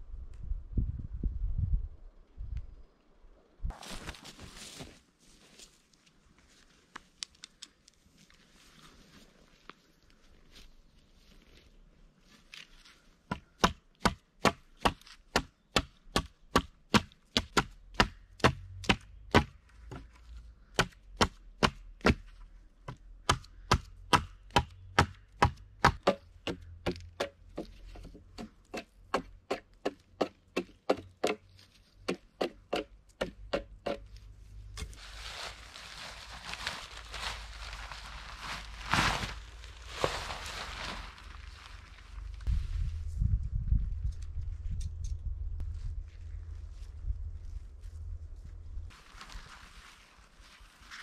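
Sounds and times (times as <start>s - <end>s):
hatchet chopping wood: 13.3s - 20.0s, 20.7s - 22.2s, 22.9s - 31.4s, 32.0s - 34.0s
tarp rustling: 34.8s - 42.9s, 48.9s - 51.0s.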